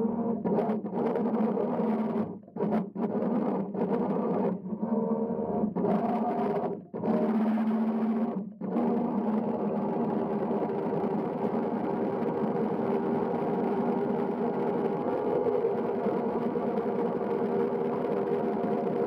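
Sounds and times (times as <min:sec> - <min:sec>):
electric motors humming underwater: 0:08.1 - 0:19.0.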